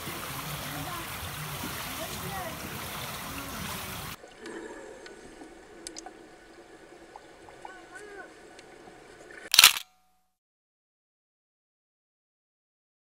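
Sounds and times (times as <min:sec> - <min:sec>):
underwater gurgling: 0:00.0 - 0:09.5
small underwater clicks: 0:04.3 - 0:06.2.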